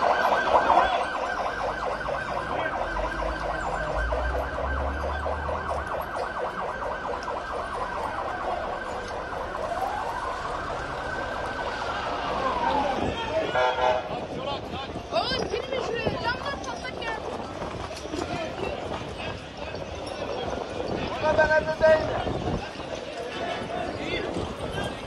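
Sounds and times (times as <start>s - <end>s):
emergency vehicle siren: 0.0s - 14.3s.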